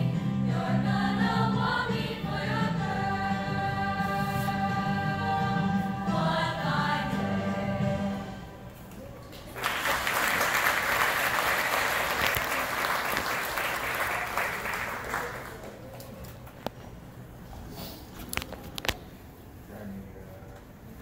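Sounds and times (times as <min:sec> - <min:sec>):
audience applause: 0:09.4 - 0:16.6.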